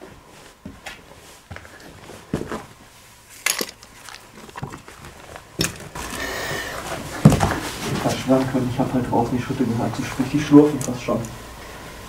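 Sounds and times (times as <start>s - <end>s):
footsteps crunching debris on stairs: 0.6s - 6.2s
scraping and rustling: 1.0s - 8.6s.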